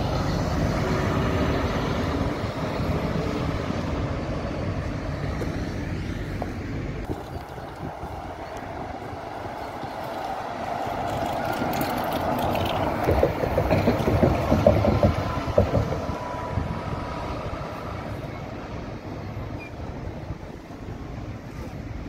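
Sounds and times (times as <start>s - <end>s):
bus driving past: 0.0s - 22.0s.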